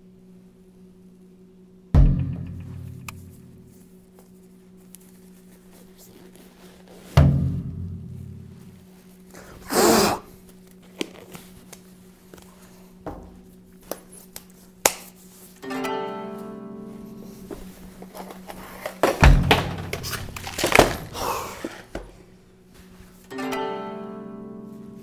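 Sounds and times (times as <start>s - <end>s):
faint music drone: 0.0s - 13.8s, 15.3s - 25.0s
loud timpani drum hit: 2.0s - 3.5s, 7.2s - 8.6s, 19.2s - 20.2s
gloves rustling: 3.3s - 7.2s, 8.2s - 15.6s, 17.1s - 23.3s.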